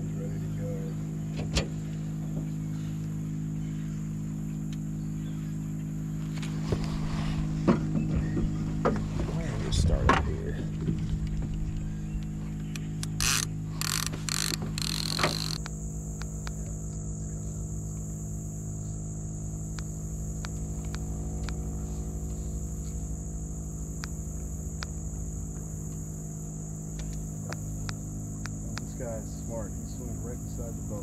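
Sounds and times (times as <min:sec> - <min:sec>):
boat motor running: 0:00.0 - 0:31.0
faint clicks: 0:12.2 - 0:17.0
high-pitched insect drone: 0:12.9 - 0:31.0.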